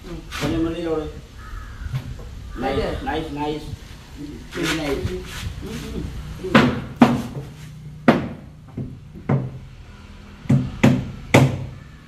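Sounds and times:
hammer striking wood: 6.5s - 9.6s, 10.5s - 11.8s.

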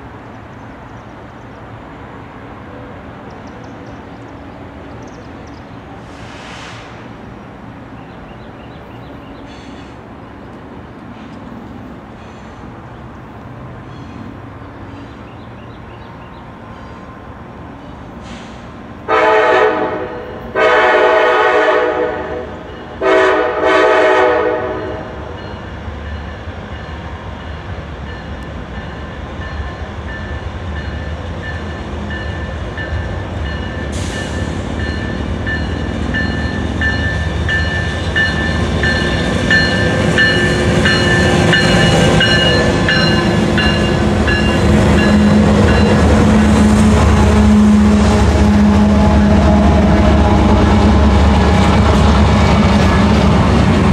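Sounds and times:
locomotive rumble: 0.0s - 53.9s
train air horn blasts: 6.1s - 7.0s, 18.3s - 25.4s, 41.2s - 53.2s.

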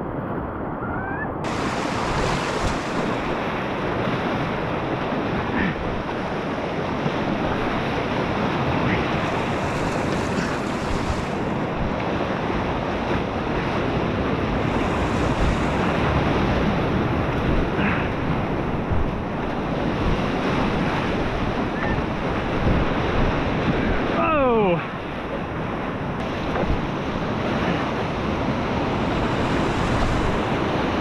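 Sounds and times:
whitewater rushing: 1.4s - 18.8s, 20.3s - 25.2s.

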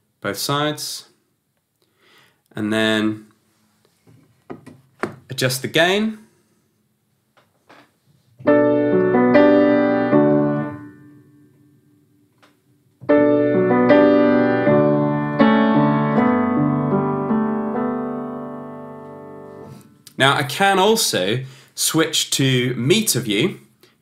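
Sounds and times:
piano chords: 8.4s - 11.8s, 13.0s - 19.9s.

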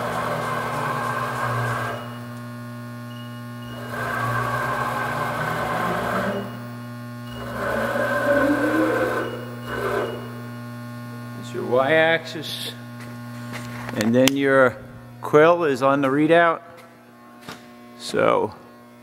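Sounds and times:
rising motor whine: 0.0s - 2.4s, 3.0s - 11.8s
mill drive motors running: 0.0s - 19.0s
steady machine hum: 0.0s - 19.0s.

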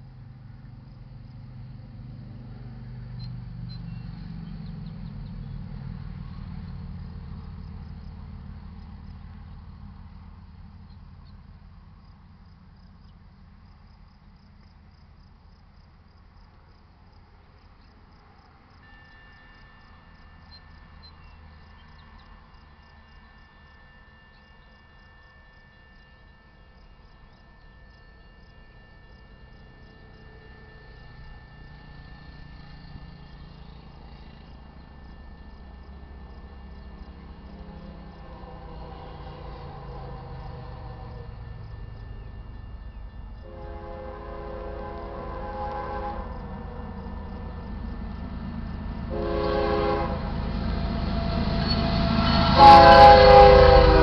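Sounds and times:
crickets chirping: 0.0s - 54.0s
low rumble of train: 0.0s - 54.0s
crossing warning bell ringing: 18.8s - 44.0s, 46.3s - 54.0s.

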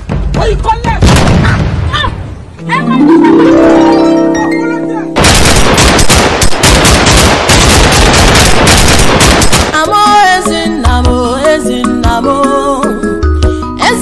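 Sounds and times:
music: 2.6s - 5.2s, 9.8s - 14.0s
rapid machine-gun fire: 5.2s - 9.8s.

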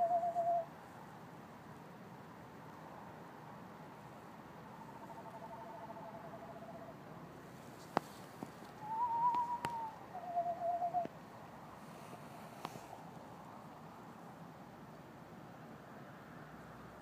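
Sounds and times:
screech owls trilling: 0.0s - 0.7s, 4.7s - 7.0s, 8.8s - 11.1s.

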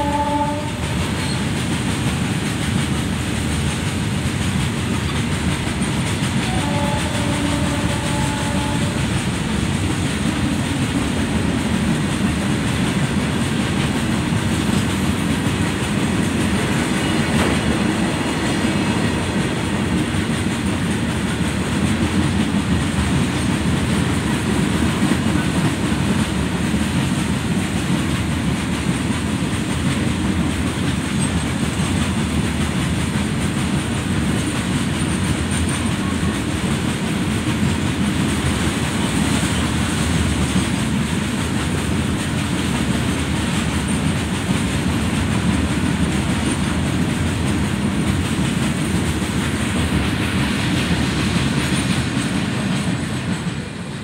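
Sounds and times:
freight train wheels rumbling on rails: 0.0s - 54.0s.

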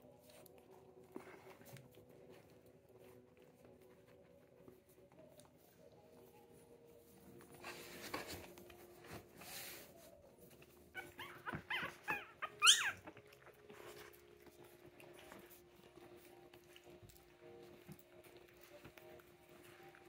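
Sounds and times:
rustling on blanket: 0.1s - 20.0s
puppy crying: 10.9s - 13.6s.

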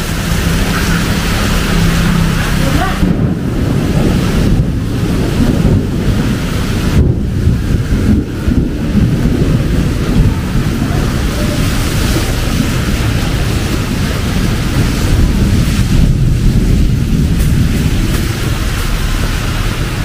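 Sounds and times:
heavy rain hiss: 0.0s - 20.0s
wind buffeting microphone: 0.0s - 20.0s.

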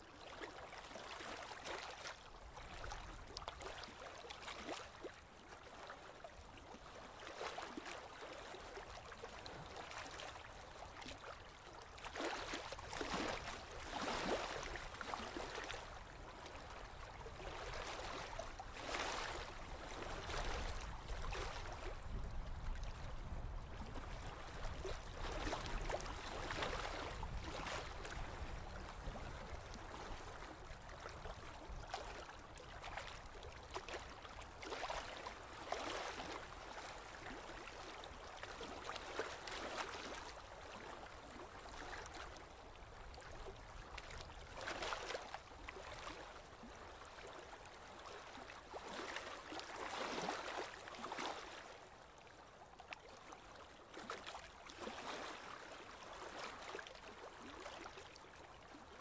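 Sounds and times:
water lapping against boat hull: 0.2s - 59.0s.

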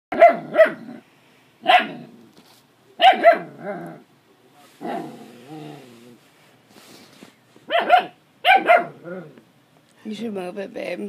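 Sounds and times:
puppy barking: 0.1s - 0.9s, 1.6s - 2.1s, 3.0s - 3.6s, 7.7s - 9.1s.

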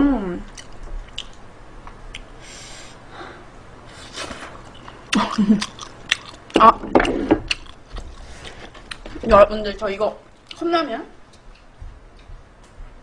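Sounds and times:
chewing: 0.5s - 2.3s, 4.2s - 9.2s.

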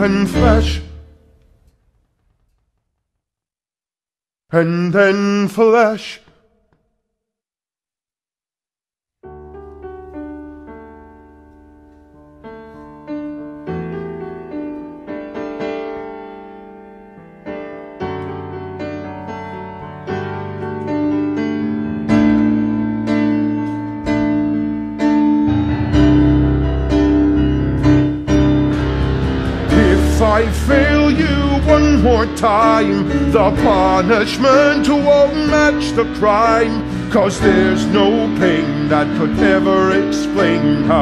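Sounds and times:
slow piano passage: 9.2s - 41.0s
low bass notes: 25.5s - 41.0s.

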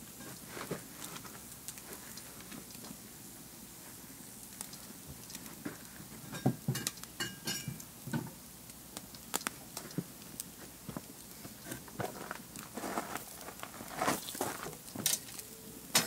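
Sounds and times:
faint steady hiss: 0.0s - 16.0s
wood fire crackling and popping: 0.0s - 16.0s.

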